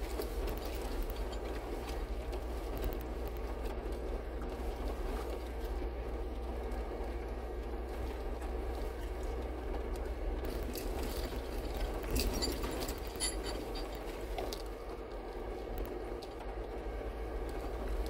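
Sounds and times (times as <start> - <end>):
vehicle engine hum: 0.0 - 18.0
clicks and scrapes on rocks: 10.4 - 14.7.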